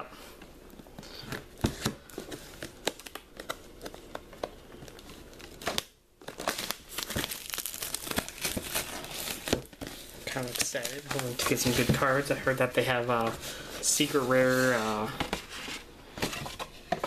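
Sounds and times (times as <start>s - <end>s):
plastic shrink wrap tearing crinkling: 1.5s - 15.1s.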